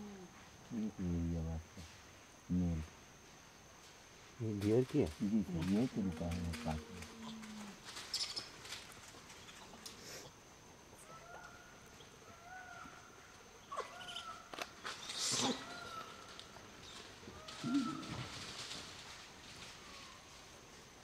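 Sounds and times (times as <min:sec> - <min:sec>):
monkeys scampering on dry leaves: 0:04.7 - 0:10.0, 0:14.0 - 0:21.0.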